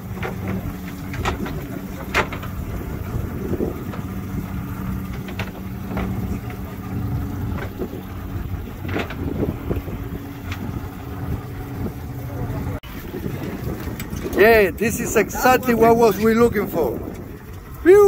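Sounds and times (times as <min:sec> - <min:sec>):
knocks on boat: 0:00.0 - 0:12.0
motorboat engine idling: 0:00.0 - 0:18.0.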